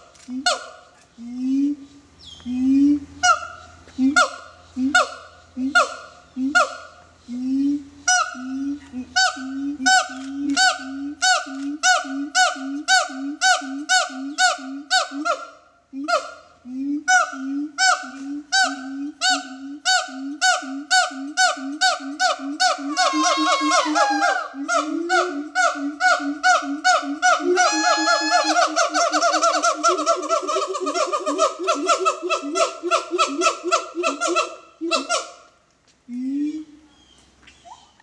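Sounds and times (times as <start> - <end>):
siamang hooting calls: 17.0 - 35.4.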